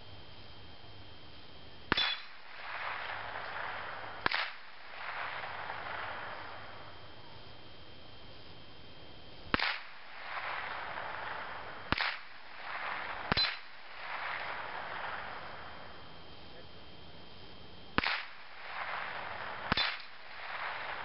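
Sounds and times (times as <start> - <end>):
distant rifle shots: 1.9 - 7.2, 9.5 - 16.2, 17.9 - 21.0.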